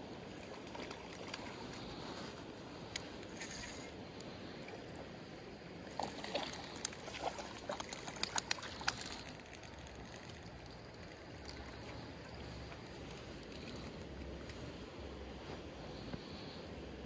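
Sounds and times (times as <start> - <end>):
fish splashing at surface: 5.9 - 10.8.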